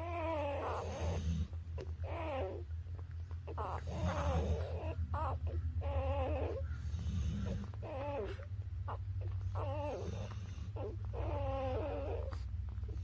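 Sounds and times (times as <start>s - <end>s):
newborn puppies whimpering: 0.0s - 13.0s.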